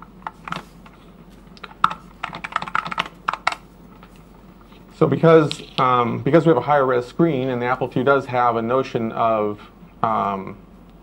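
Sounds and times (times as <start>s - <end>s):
computer keyboard keys clacking: 1.8s - 3.6s.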